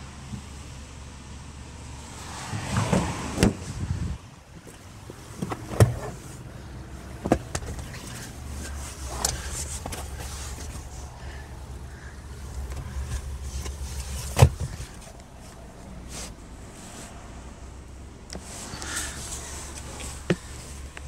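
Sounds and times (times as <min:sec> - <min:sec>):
low cabin hum: 0:02.9 - 0:21.0
handling rustle: 0:07.4 - 0:17.2.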